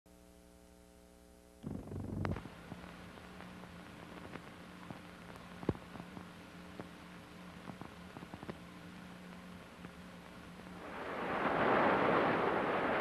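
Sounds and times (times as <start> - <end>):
electrical hum: 0.1 - 13.0
steady tape hiss: 0.1 - 13.0
scattered clicks and pops: 1.6 - 8.7
burst of crackling: 9.3 - 13.0.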